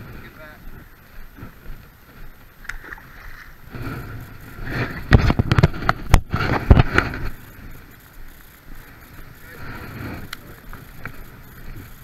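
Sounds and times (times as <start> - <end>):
light rain hiss: 0.0 - 12.0.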